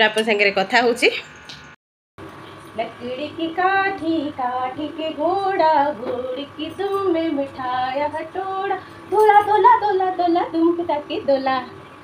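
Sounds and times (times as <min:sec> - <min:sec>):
woman singing children's tune: 0:02.8 - 0:11.8.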